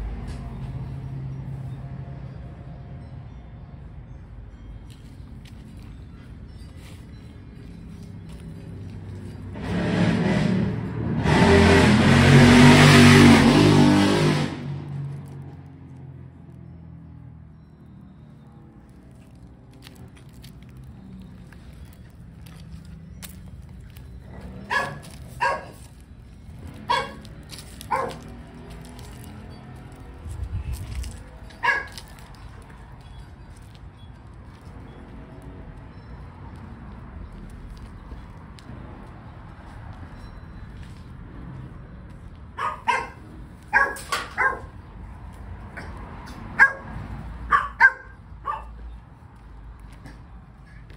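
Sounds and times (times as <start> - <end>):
dog barking: 24.6 - 25.8, 26.9 - 27.2, 27.9 - 28.3, 31.6 - 32.0, 42.6 - 44.8, 46.6 - 48.8.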